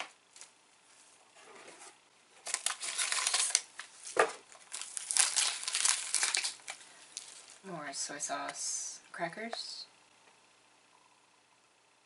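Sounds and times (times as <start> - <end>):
plastic wrapper crinkling: 2.4 - 7.6.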